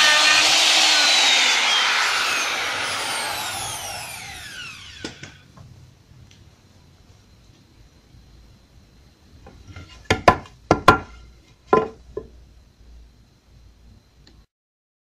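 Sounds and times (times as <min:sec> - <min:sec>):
sharp wooden knocks: 0:10.1 - 0:11.1.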